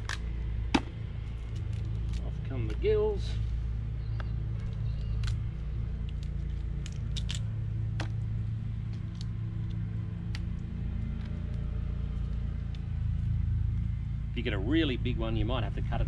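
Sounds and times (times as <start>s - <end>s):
steady low hum: 0.0s - 16.0s
crab shell cracking: 4.6s - 8.2s.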